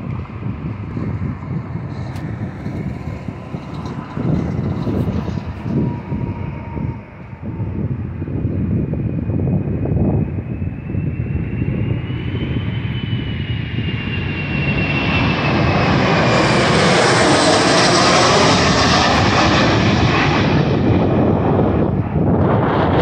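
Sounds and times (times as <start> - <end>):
jet airliner passing overhead: 0.0 - 23.0
turbofan engines whining: 0.0 - 23.0.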